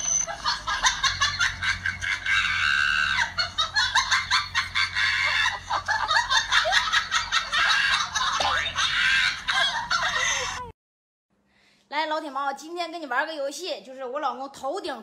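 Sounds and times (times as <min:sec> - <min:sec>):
high-pitched cackling: 0:00.3 - 0:10.6.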